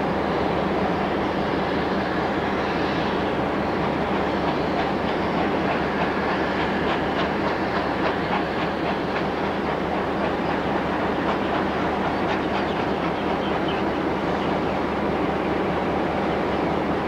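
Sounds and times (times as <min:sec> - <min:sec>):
steam train rolling past: 0:00.0 - 0:17.0.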